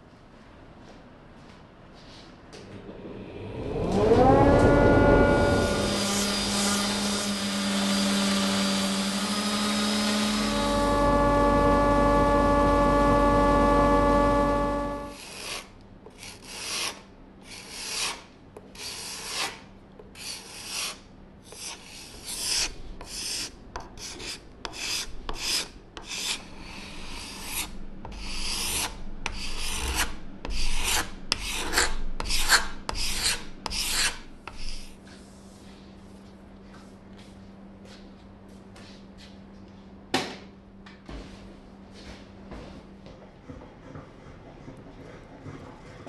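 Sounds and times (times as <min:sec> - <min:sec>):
card scraper scraping wood: 0:15.1 - 0:18.2.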